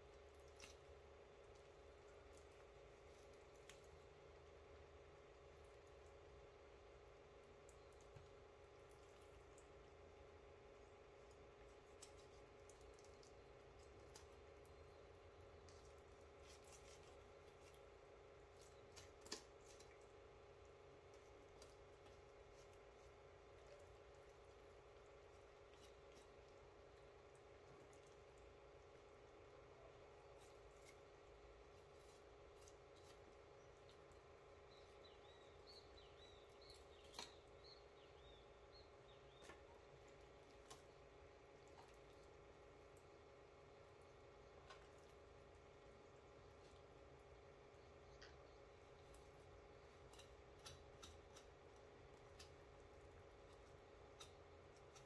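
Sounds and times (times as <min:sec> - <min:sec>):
faint steady hum: 0:00.0 - 0:55.0
knife cutting raw chicken: 0:49.4 - 0:55.0.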